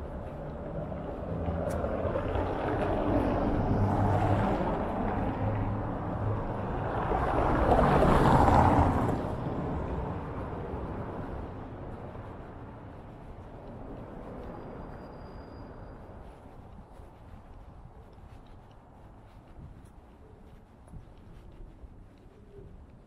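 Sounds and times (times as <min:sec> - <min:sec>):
vehicles passing: 0:00.0 - 0:23.0.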